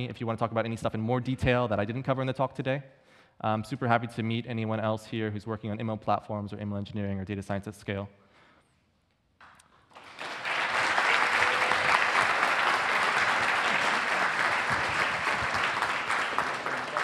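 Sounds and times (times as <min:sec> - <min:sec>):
audience applauding: 0:09.4 - 0:17.0.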